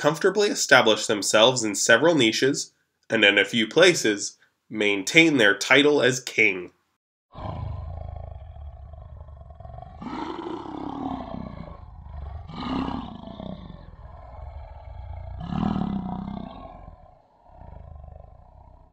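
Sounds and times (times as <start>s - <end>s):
lion roaring: 7.3s - 18.9s.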